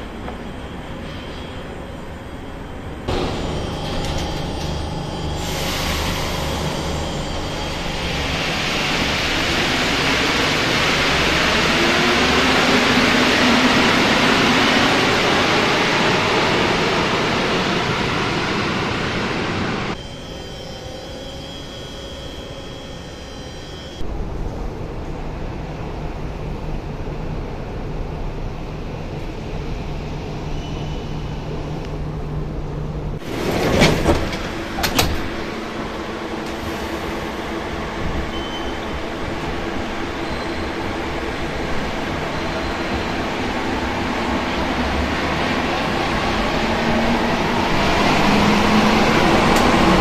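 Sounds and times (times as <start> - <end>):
metro train rushing noise: 0.0 - 50.0.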